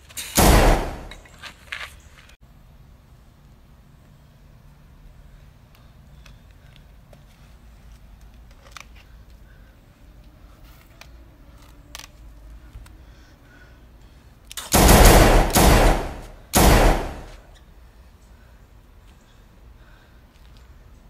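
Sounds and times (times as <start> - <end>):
automatic gunfire bursts: 0.4 - 1.1, 14.6 - 17.4.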